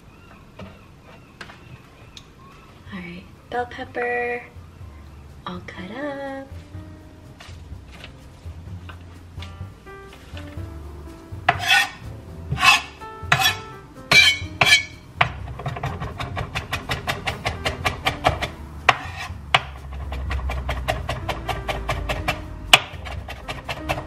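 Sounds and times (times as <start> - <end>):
background music: 2.9 - 24.0
knife scraping board: 11.5 - 15.0, 18.9 - 22.3
knife chopping on cutting board: 11.5 - 24.0.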